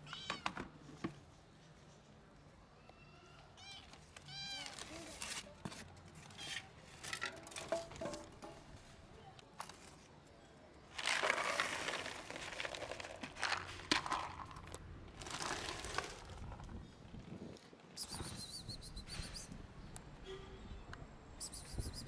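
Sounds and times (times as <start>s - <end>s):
cat kibble rattling onto plastic plate: 11.0s - 16.8s.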